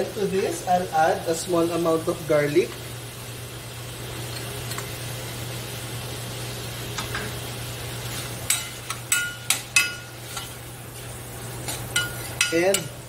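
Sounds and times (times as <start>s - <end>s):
prawns sizzling in butter: 0.0s - 13.0s
metal spoon clinking against pan: 8.5s - 10.5s, 11.7s - 13.0s.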